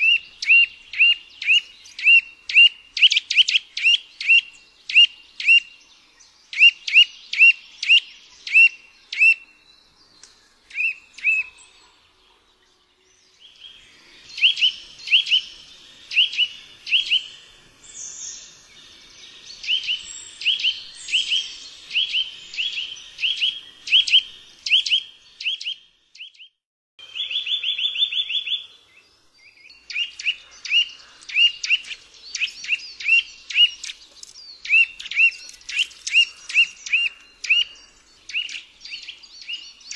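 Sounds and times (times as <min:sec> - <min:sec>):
bird whistled calls: 0:00.0 - 0:05.7, 0:06.5 - 0:09.4, 0:10.7 - 0:11.8, 0:14.3 - 0:17.4, 0:19.6 - 0:28.7, 0:29.4 - 0:34.0, 0:34.6 - 0:39.9.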